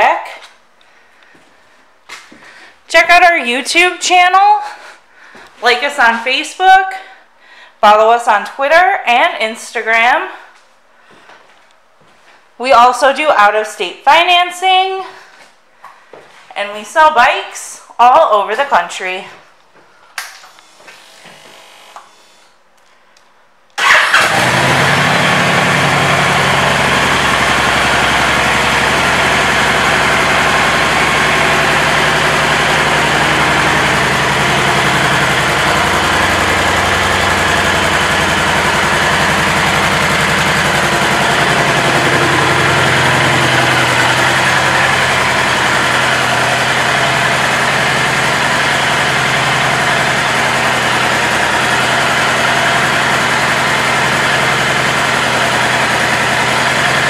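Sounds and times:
motorcycle engine starting and idling: 23.8 - 57.0.

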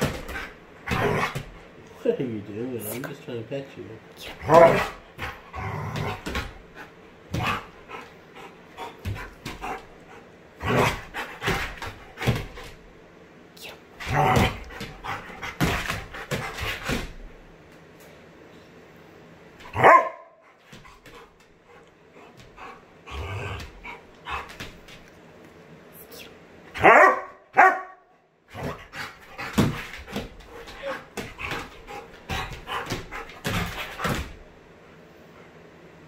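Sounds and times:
dog barking: 4.5 - 5.0, 19.8 - 20.4, 26.8 - 28.1.

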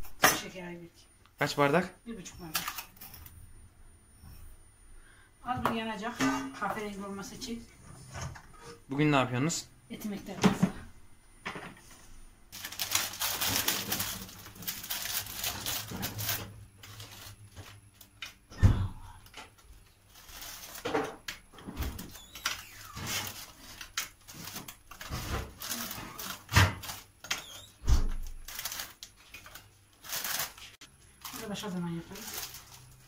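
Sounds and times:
plastic wrapper crinkling: 12.5 - 18.4, 19.6 - 20.9, 22.0 - 33.0.

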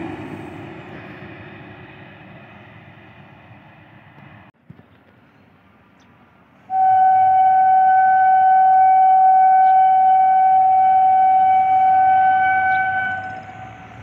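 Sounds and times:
locomotive horn blast: 6.7 - 14.0.

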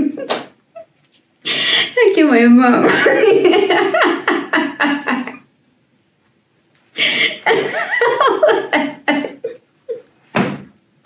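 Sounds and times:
woman laughing: 0.0 - 0.9, 2.8 - 5.4, 7.0 - 10.1.

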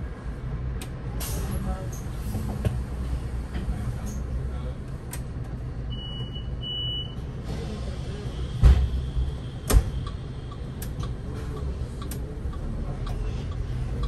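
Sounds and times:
bus engine running: 0.0 - 14.0
bus doors thumping shut: 8.6 - 10.0
turn indicator ticking: 10.0 - 14.0.

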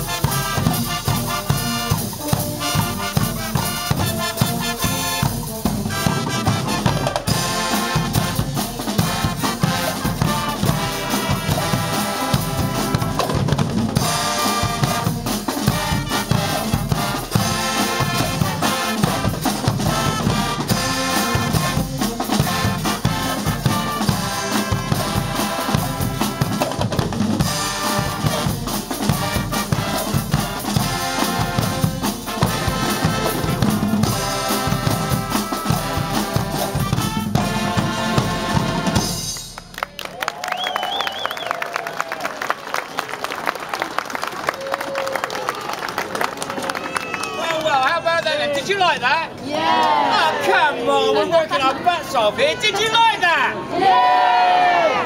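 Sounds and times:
sousaphones and trumpets: 0.0 - 13.4, 14.0 - 26.8, 27.4 - 39.4
large bass drums: 0.0 - 39.3.

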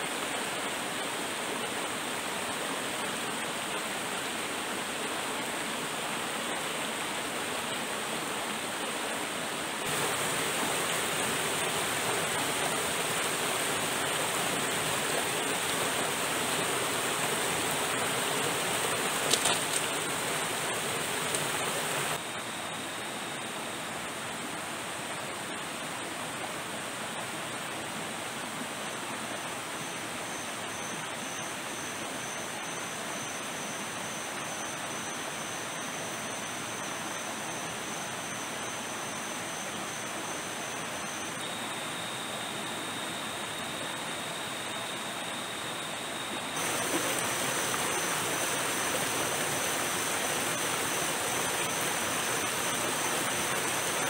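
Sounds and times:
river water rushing: 0.0 - 22.2, 40.7 - 54.0.

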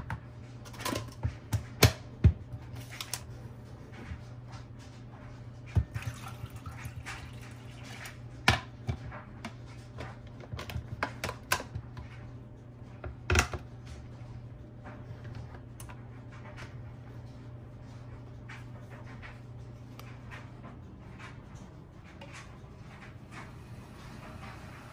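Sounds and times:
low steady hum: 0.0 - 24.9.

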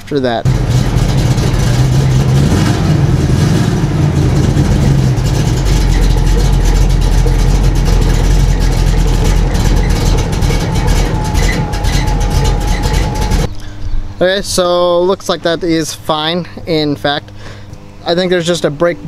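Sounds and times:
pickup truck engine idling: 0.5 - 13.5
steady whine: 0.5 - 13.6
wheel spinning freely: 4.5 - 13.5.

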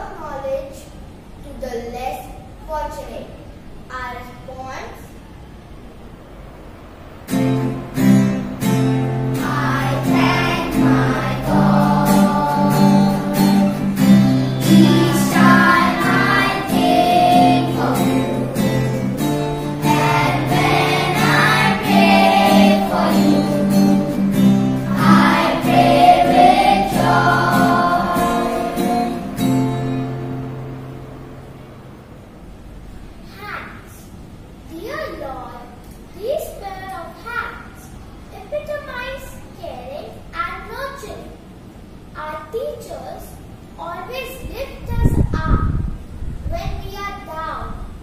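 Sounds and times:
held backing chords: 7.3 - 32.2
group of voices singing: 9.4 - 29.5.

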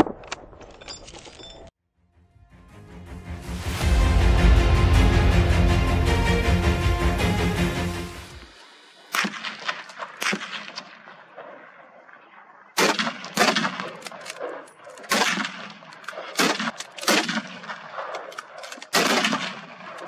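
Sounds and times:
rifle shots with echo: 9.1 - 20.0.

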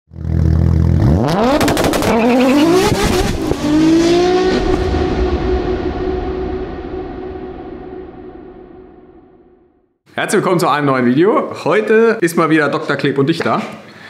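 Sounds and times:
car engine revving: 0.1 - 9.5.

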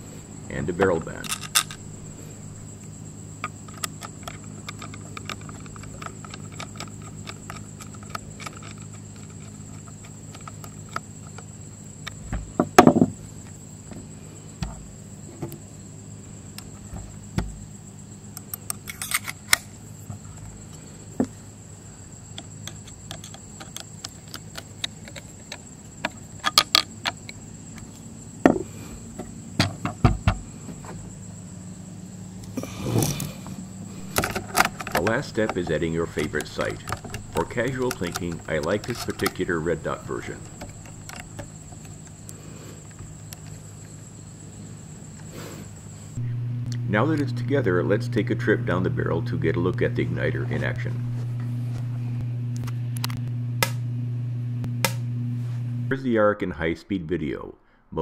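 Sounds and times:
low hum: 0.0 - 19.3, 31.1 - 45.0, 45.9 - 56.0
rifle handling knocks: 12.1 - 13.2, 16.8 - 17.6, 28.4 - 28.7
high thin whine: 32.5 - 41.4, 45.3 - 56.1.

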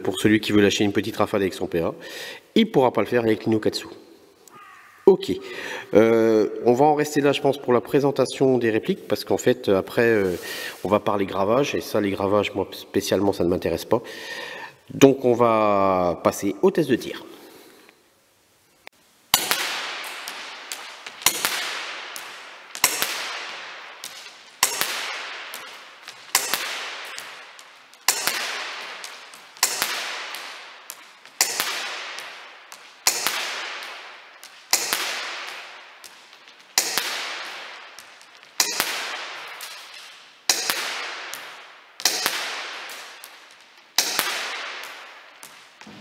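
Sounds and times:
airsoft pistol shots echoing: 19.3 - 46.0.

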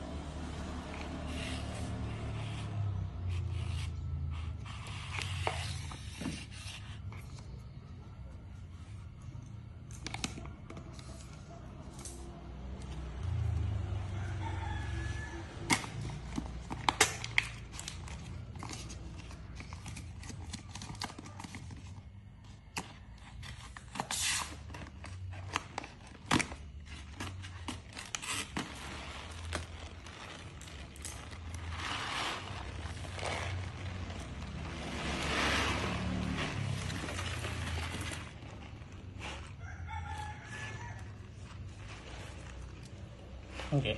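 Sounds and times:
paper bag rustling: 23.8 - 43.9
paper bag tearing and crinkling: 27.4 - 39.4.

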